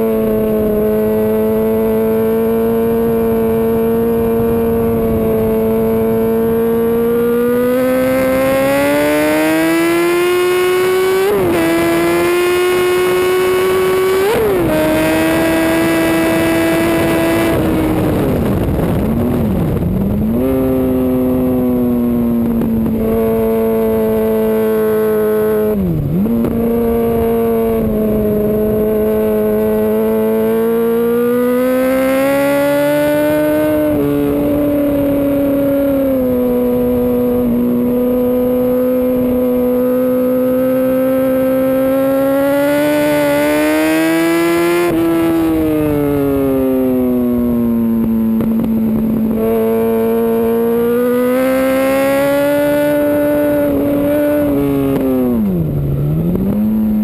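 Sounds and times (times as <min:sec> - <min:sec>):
motorcycle engine at race pace: 0:00.0 - 0:57.0.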